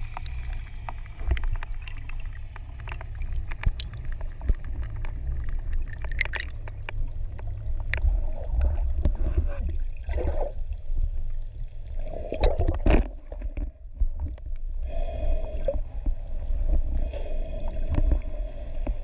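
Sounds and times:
underwater rush of water: 0:00.0 - 0:19.0
bubbles gurgling: 0:07.9 - 0:10.6, 0:12.0 - 0:13.8.

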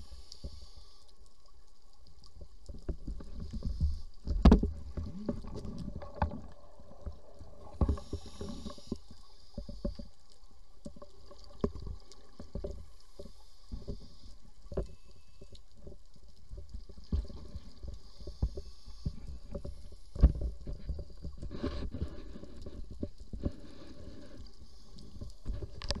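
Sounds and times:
diver regulator breathing: 0:00.0 - 0:01.2, 0:03.2 - 0:06.0, 0:07.7 - 0:10.1, 0:13.0 - 0:15.5, 0:17.7 - 0:25.9
air bubbles hissing: 0:03.2 - 0:09.9.

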